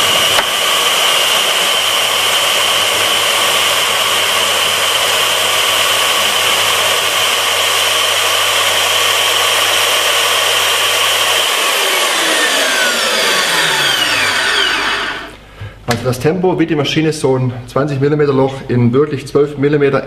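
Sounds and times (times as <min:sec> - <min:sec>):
core drill motor whine: 0:00.0 - 0:15.4.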